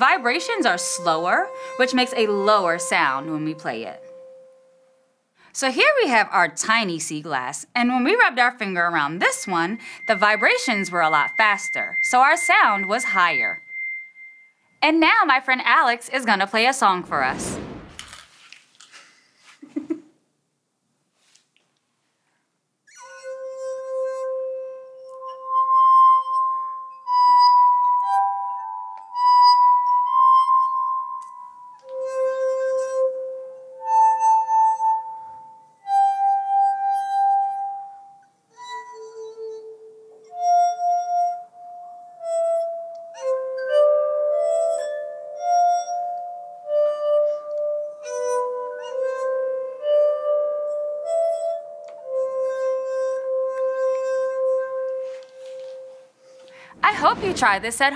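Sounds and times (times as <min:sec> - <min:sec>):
glass harp playing slow tune: 0:00.0 - 0:05.0, 0:08.1 - 0:14.6, 0:23.0 - 0:56.6.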